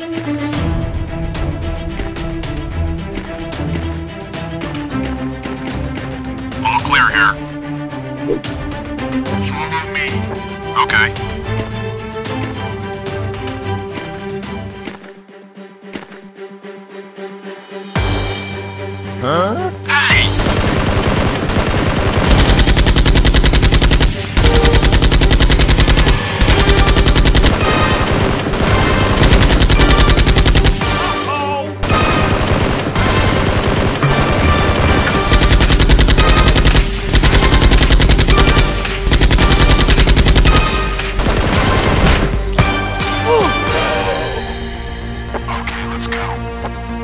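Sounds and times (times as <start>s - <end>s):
machine-gun fire: 20.2s - 31.2s, 31.8s - 42.8s.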